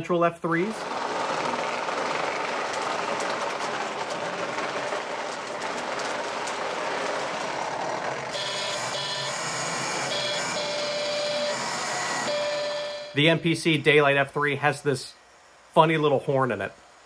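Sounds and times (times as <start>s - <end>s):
model train rolling rumble: 0.0s - 17.0s
wheels clicking over rail joints: 0.2s - 12.4s.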